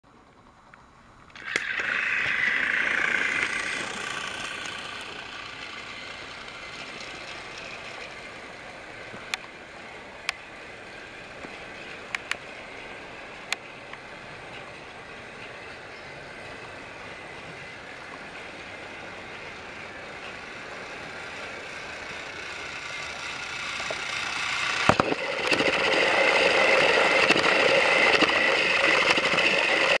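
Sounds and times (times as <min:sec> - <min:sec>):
sharp clicks: 0:00.7 - 0:05.3, 0:12.1 - 0:12.4
toy train motor whirring: 0:01.3 - 0:09.6, 0:10.2 - 0:30.0.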